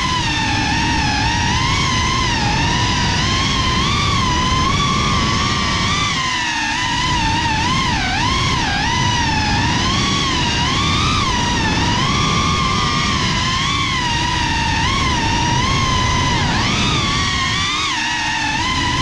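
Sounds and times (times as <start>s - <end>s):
drone motors whining: 0.0s - 19.0s
prop wash and wind rushing: 0.0s - 19.0s.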